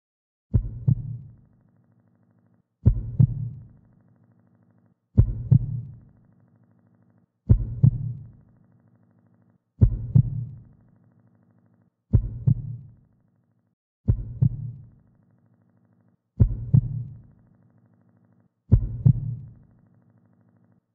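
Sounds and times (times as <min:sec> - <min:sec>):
heartbeat double thump: 0:00.6 - 0:01.2, 0:02.8 - 0:03.7, 0:05.2 - 0:06.0, 0:07.5 - 0:08.3, 0:09.8 - 0:10.6, 0:12.1 - 0:12.8, 0:14.1 - 0:14.8, 0:16.4 - 0:17.2, 0:18.7 - 0:19.5.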